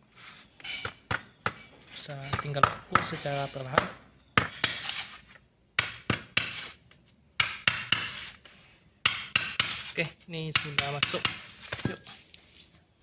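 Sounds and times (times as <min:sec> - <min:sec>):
hammer tapping metal: 0:05.8 - 0:06.6, 0:07.4 - 0:08.2, 0:09.0 - 0:09.8, 0:10.5 - 0:12.1.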